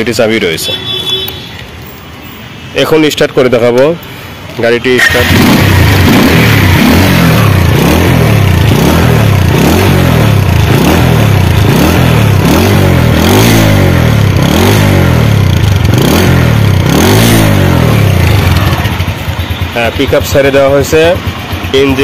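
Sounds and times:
motorcycle engine revving: 4.9 - 22.0.

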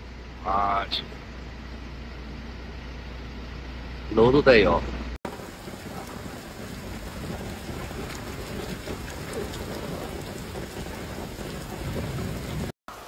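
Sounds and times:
heavy rain on paving: 5.2 - 13.0.

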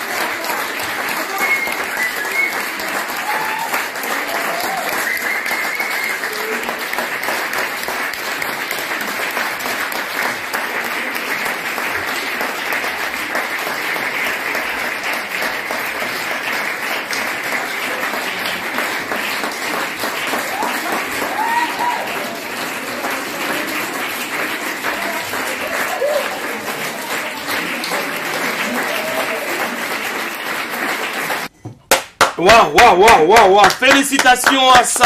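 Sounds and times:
audience applause: 0.0 - 31.5, 32.2 - 35.0.

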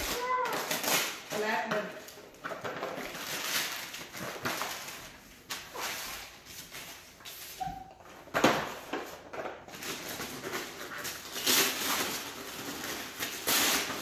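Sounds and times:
wrapping paper tearing: 0.0 - 7.7, 9.7 - 14.0.

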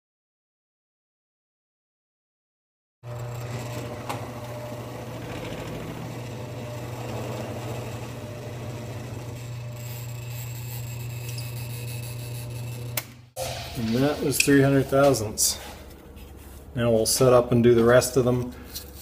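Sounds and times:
mill-drill motor humming: 3.0 - 14.4.

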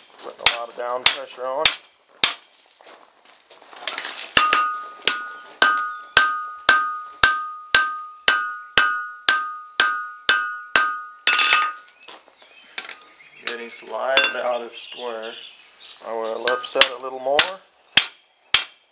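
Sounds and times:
hammer striking hot steel: 4.4 - 11.8.

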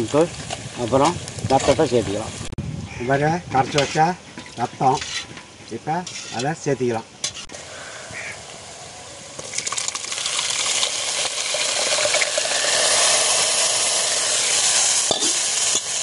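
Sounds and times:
loud sizzling in hot oil: 7.3 - 16.0.

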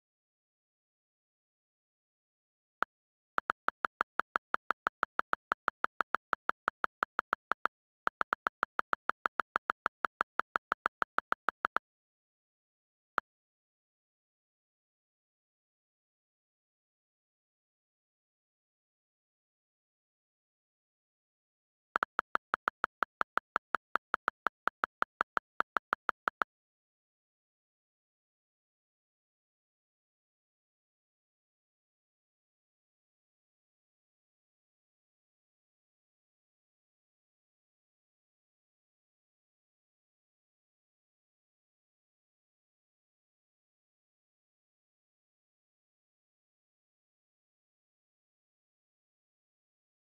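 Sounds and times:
on-screen keyboard clicks: 2.8 - 11.8, 22.0 - 26.5.

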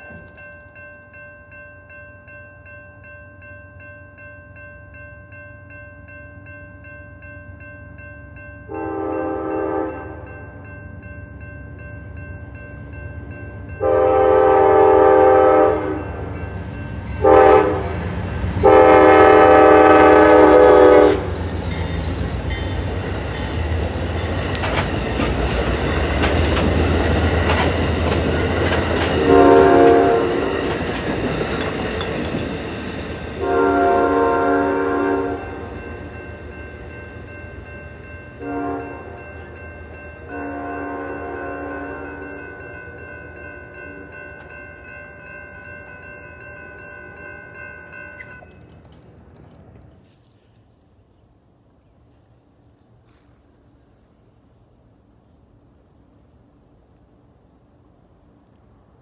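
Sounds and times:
crossing signal bell ringing: 0.0 - 49.6
train wheels rumbling on rails: 8.6 - 50.6
train horn blasts: 8.7 - 10.6, 13.8 - 16.4, 17.2 - 21.5, 29.1 - 30.7, 33.4 - 35.8, 38.4 - 39.6, 40.2 - 42.9.

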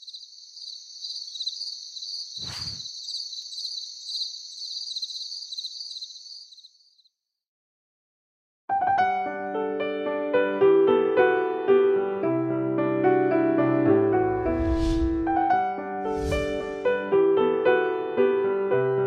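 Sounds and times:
insects trilling: 0.0 - 7.1
piano music: 8.8 - 19.0.

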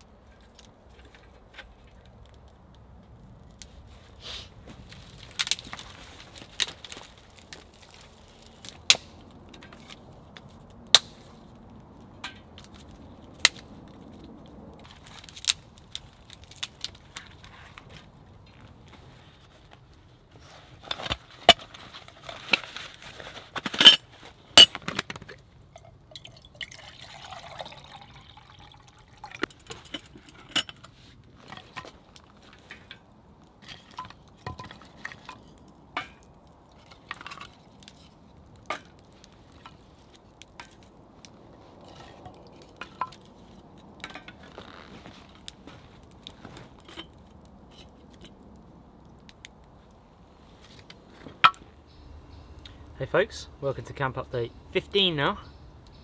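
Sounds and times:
twigs snapping and crackling: 0.0 - 20.0, 30.8 - 56.0
water pouring into metal pot: 26.1 - 29.7.

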